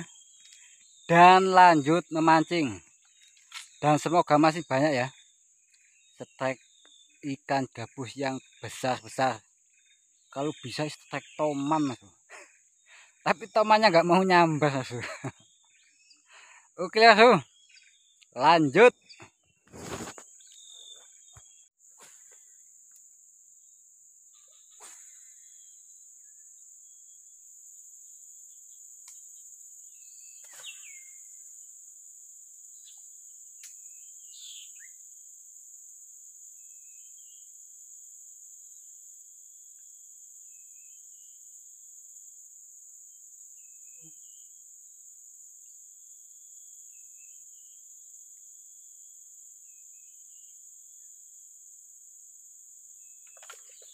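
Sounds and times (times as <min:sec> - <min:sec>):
high-pitched insect drone: 0:00.0 - 0:19.0
faint insect chirps: 0:00.0 - 0:53.9.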